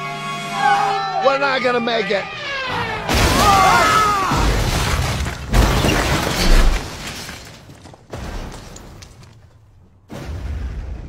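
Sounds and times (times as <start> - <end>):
people yelling: 0.0 - 4.6.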